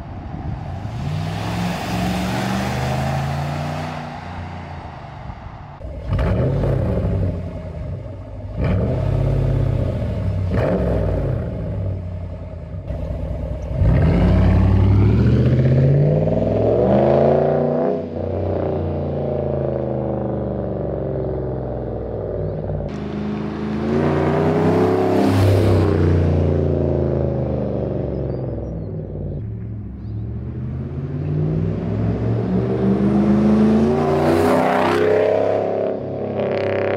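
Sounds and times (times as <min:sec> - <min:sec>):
engine exhaust revving: 0:00.0 - 0:18.7.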